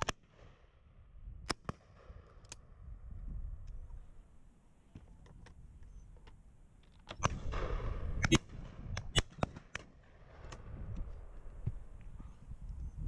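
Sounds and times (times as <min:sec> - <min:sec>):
shotgun shots: 0:07.2 - 0:10.6.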